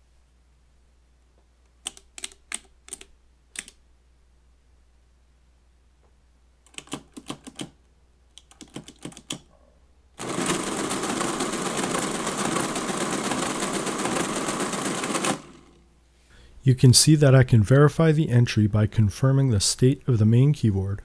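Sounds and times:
calculator mechanism running: 10.2 - 15.8.

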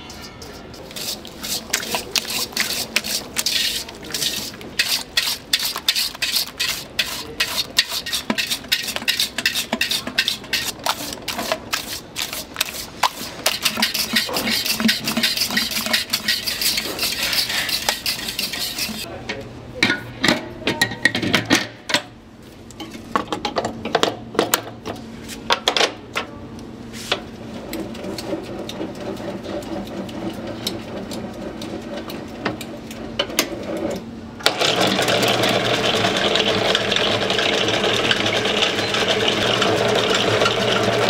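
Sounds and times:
whisk beating eggs in metal bowl: 0.0 - 19.1, 34.5 - 41.0.

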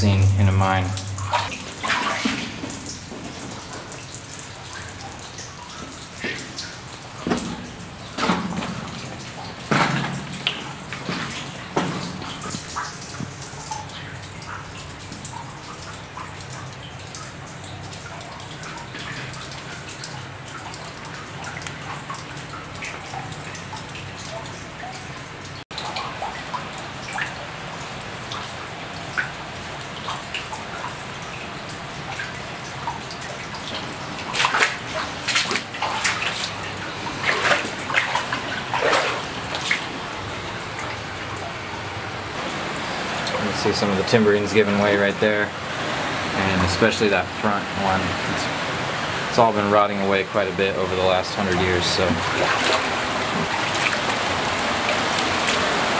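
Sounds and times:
water drops plinking into pool: 0.0 - 40.0
water splashing: 0.0 - 55.9.

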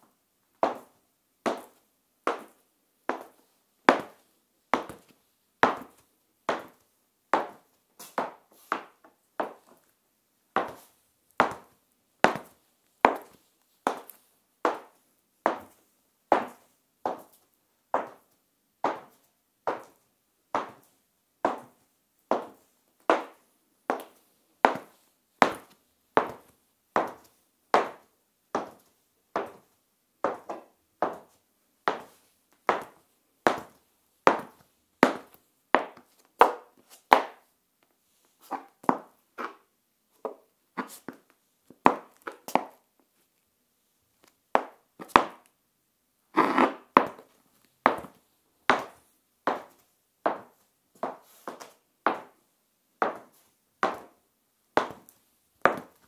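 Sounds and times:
high heels clicking on tiles: 21.5 - 28.0, 32.7 - 37.4, 46.4 - 47.3, 47.9 - 52.4, 53.0 - 54.2, 54.8 - 56.0.

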